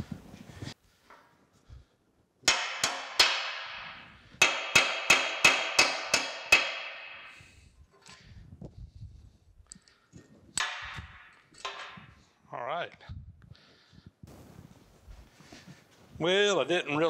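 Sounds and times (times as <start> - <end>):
hammer ringing on metal: 2.5 - 7.4.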